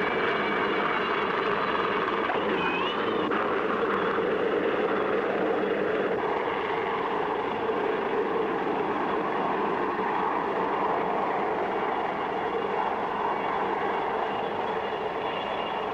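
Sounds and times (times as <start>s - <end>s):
aircraft engine drone: 0.0s - 15.9s.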